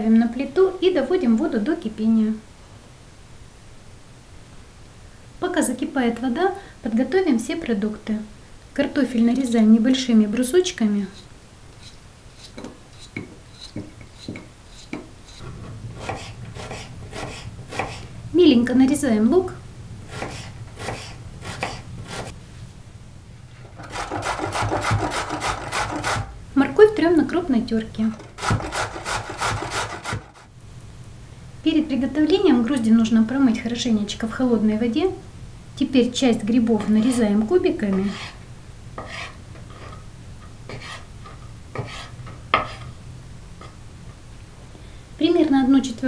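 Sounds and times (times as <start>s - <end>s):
knife chopping on cutting board: 20.1s - 22.3s, 41.8s - 42.8s
carrot scraping on grater: 23.7s - 26.3s, 28.2s - 30.4s, 39.0s - 40.0s, 40.7s - 42.9s.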